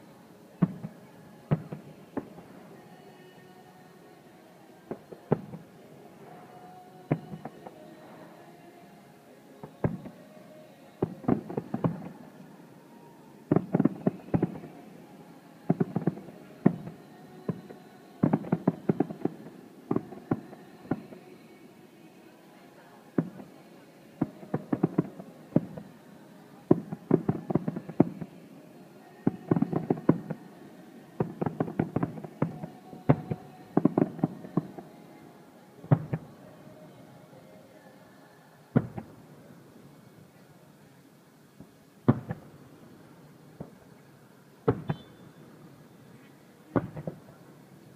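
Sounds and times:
distant fireworks bursting: 0:00.6 - 0:02.8, 0:04.9 - 0:08.2, 0:09.6 - 0:10.3, 0:11.0 - 0:15.0, 0:15.6 - 0:21.4, 0:23.2 - 0:26.0, 0:26.7 - 0:28.4, 0:29.2 - 0:30.5, 0:31.2 - 0:35.0, 0:35.8 - 0:36.8, 0:38.7 - 0:39.5, 0:41.6 - 0:47.5.

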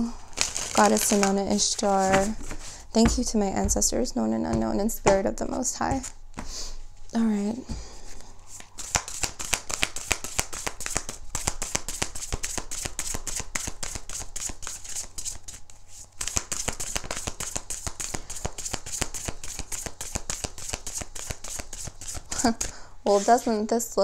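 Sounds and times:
cards being shuffled: 0:00.3 - 0:03.8, 0:08.5 - 0:22.6.

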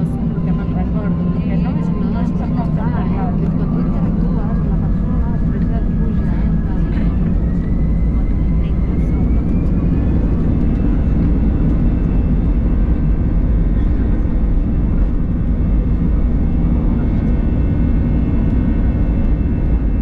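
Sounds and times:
faint steady engine tones: 0:00.0 - 0:20.0
jet engines droning in cabin: 0:00.0 - 0:20.0.

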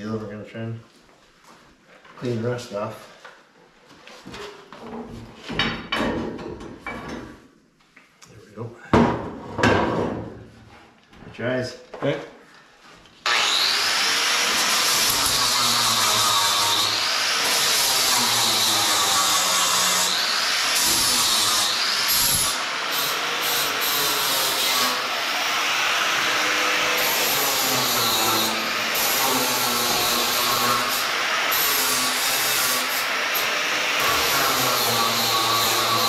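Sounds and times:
angle grinder grinding metal: 0:13.2 - 0:36.0.

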